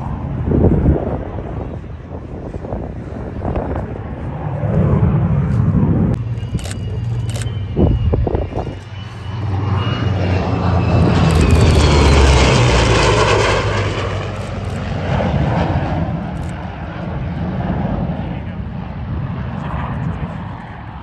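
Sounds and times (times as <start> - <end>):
aircraft engines flying past: 0.0 - 21.0
jet whine falling in pitch: 4.4 - 15.2.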